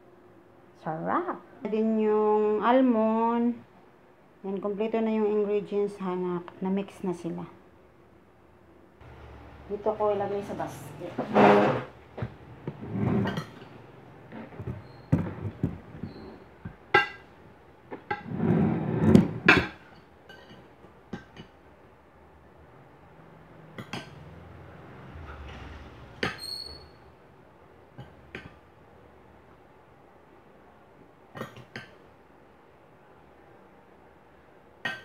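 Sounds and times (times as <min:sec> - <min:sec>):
handling noise: 0:11.1 - 0:17.3.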